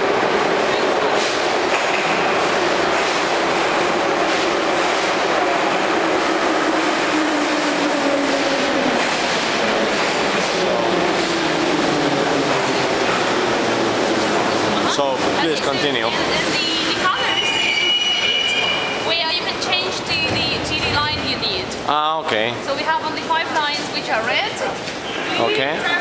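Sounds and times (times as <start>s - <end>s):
train wheels rumbling on rail: 0.0s - 21.9s.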